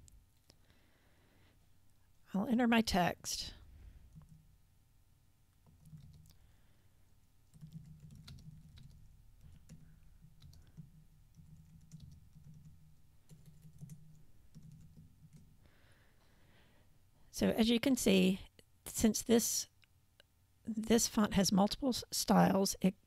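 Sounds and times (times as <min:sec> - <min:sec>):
typing on keyboard: 0:05.6 - 0:06.4, 0:07.4 - 0:15.6.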